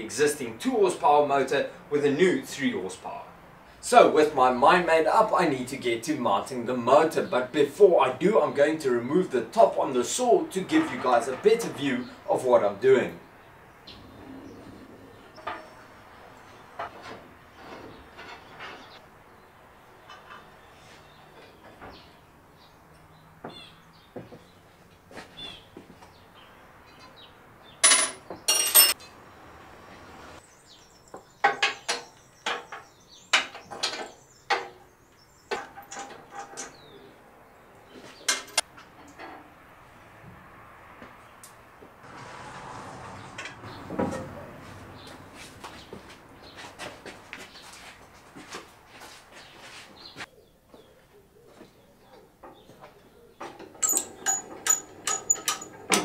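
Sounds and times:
metal parts clinking: 0:27.8 - 0:29.0, 0:53.8 - 0:56.0
hand tools clanking on cast iron: 0:53.4 - 0:56.0.

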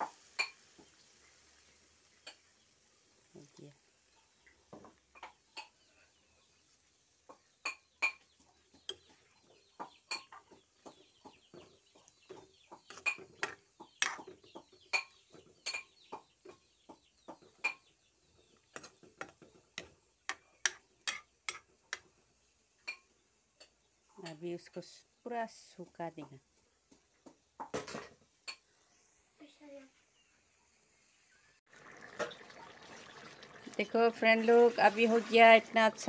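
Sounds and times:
curry bubbling and popping: 0:00.0 - 0:05.9, 0:06.6 - 0:17.8, 0:18.6 - 0:22.2, 0:31.6 - 0:36.0
faint fizz: 0:31.2 - 0:36.0.

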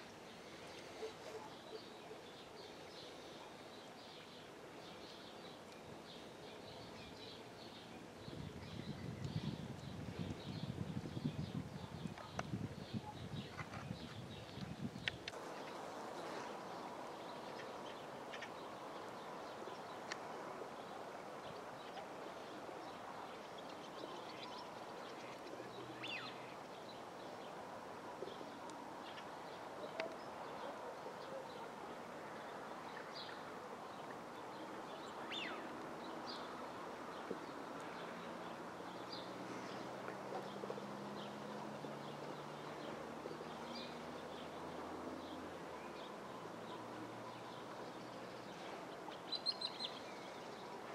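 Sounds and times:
steady background hiss: 0:00.0 - 0:13.1, 0:14.1 - 0:50.9
bird calls and chirps: 0:00.0 - 0:27.6, 0:28.2 - 0:50.9.

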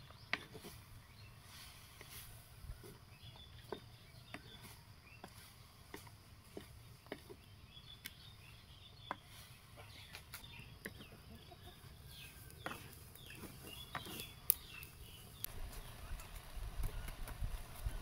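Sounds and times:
birds chirping: 0:00.0 - 0:18.0
wooden spatula scraping clay pot: 0:12.1 - 0:14.8.

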